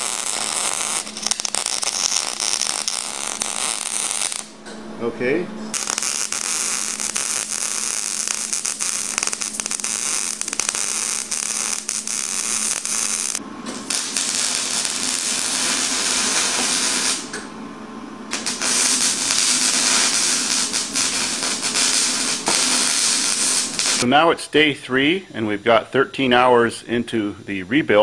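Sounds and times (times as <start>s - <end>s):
arc welding crackling and buzzing: 0.0s - 17.6s, 18.2s - 24.1s
low hum: 0.0s - 24.5s.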